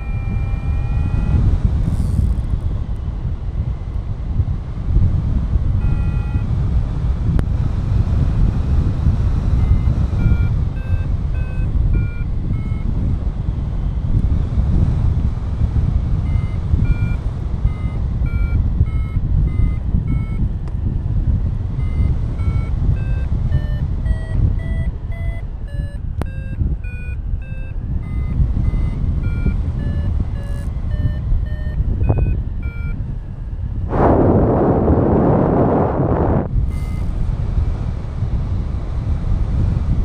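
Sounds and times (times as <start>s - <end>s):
variometer beeping: 0.0s - 3.1s, 5.7s - 7.4s, 9.4s - 13.2s, 15.8s - 33.9s, 34.5s - 37.1s
wind rumble on microphone: 0.0s - 40.0s.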